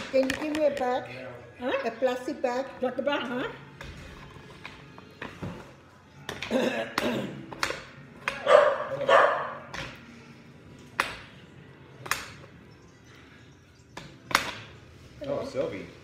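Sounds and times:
dog barking: 8.4 - 9.7.

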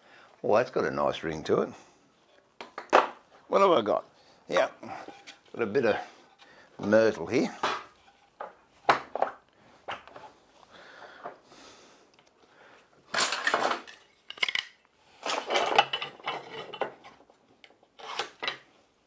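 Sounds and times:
metal square scraping on wood: 15.2 - 17.2, 18.0 - 18.6.

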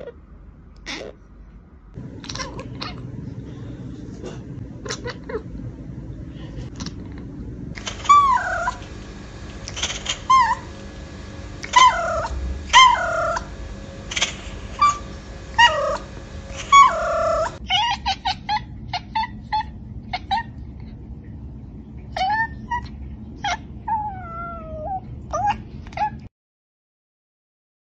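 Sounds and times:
cat chirping meows: 7.8 - 8.8, 9.7 - 10.7, 11.6 - 13.5, 14.1 - 20.6.

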